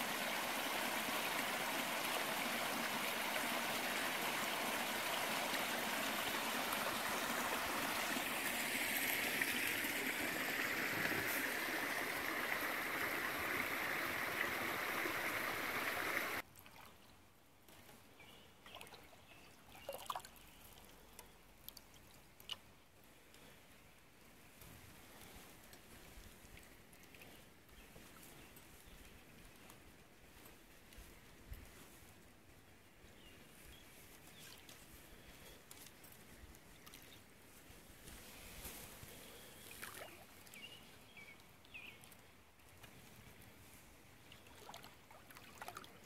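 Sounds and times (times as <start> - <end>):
water rushing over sticks: 0.0 - 16.4, 39.3 - 40.5
water dripping and splashing: 39.7 - 40.6, 44.3 - 46.0.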